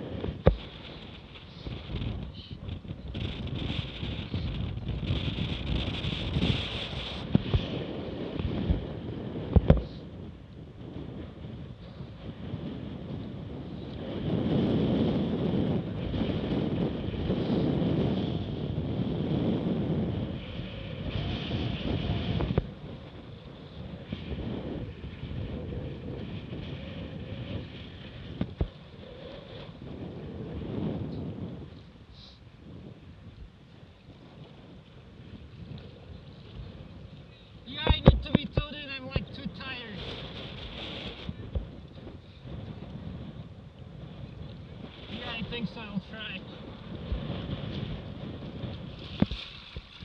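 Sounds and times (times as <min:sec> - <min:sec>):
water rushing along boat hull: 0:00.0 - 0:50.0
wind buffeting microphone: 0:00.0 - 0:50.0
water slapping: 0:34.2 - 0:42.0, 0:44.3 - 0:50.0.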